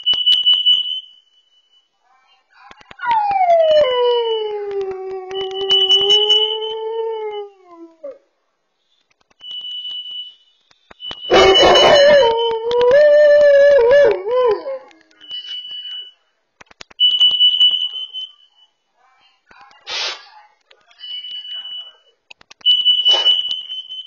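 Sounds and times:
alarm beeping: 5.4s - 6.8s, 9.4s - 12.5s, 17.0s - 18.7s, 21.0s - 24.0s.

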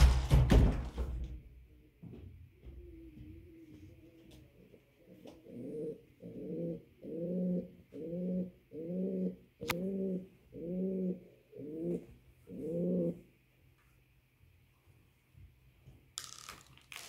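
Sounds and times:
pigeon cooing: 2.6s - 13.2s.

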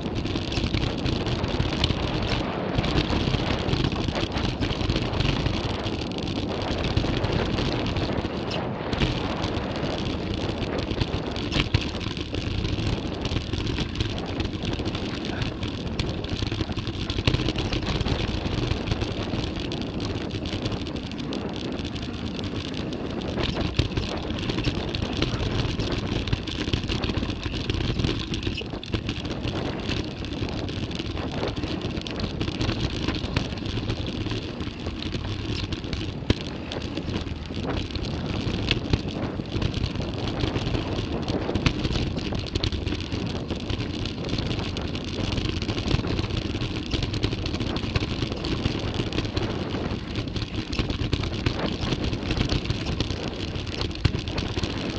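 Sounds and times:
bike clattering and rattling: 0.0s - 54.9s
tyres rushing on dirt: 0.0s - 54.9s
wind on microphone: 0.0s - 54.9s.

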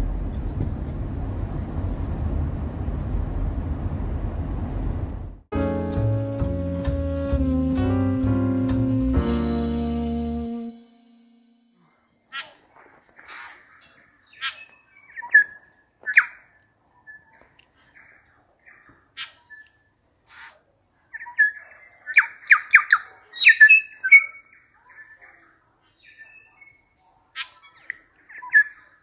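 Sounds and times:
birds whistling: 13.5s - 17.4s, 21.1s - 25.2s.

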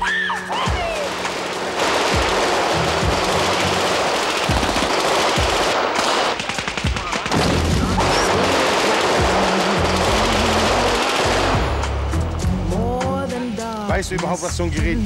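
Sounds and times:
rapid automatic gunfire: 0.8s - 11.8s.

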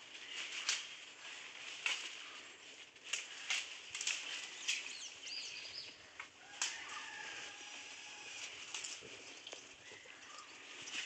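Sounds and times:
leaves snapping: 0.1s - 5.2s, 6.1s - 9.7s.

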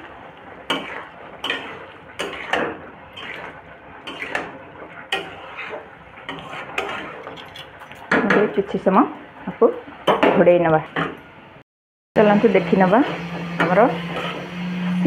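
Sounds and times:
metal spatula scraping iron pan: 0.0s - 8.9s, 12.7s - 14.5s.

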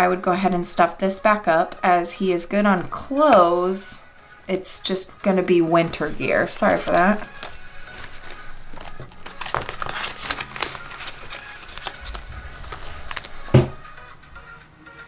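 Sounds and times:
banknotes and plastic crinkling: 5.6s - 14.2s.

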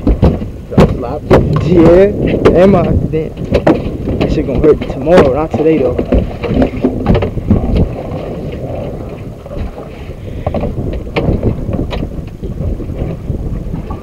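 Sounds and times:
sharp knocks: 0.0s - 7.9s, 10.4s - 12.4s
wind buffeting microphone: 0.0s - 14.0s.

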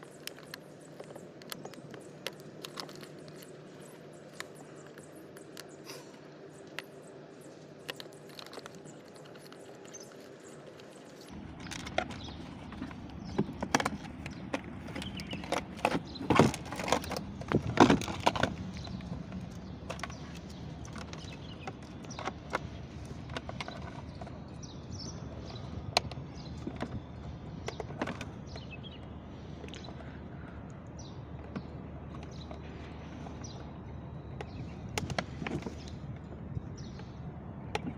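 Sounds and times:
plastic parts clicking and rattling: 0.0s - 33.6s.

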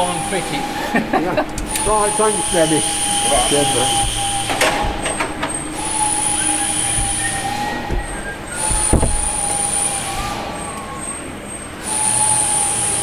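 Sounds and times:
high-pitched machinery whine: 0.0s - 13.0s
sharp metallic knocks: 3.0s - 9.7s.

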